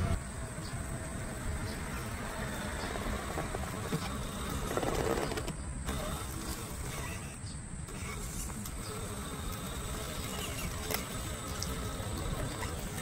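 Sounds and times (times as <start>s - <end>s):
toy car electric motor and gears: 0.7s - 13.0s.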